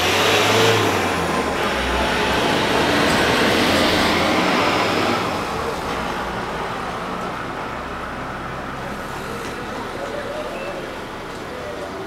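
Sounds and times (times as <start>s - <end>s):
road vehicle engine and tyres: 0.0s - 12.0s.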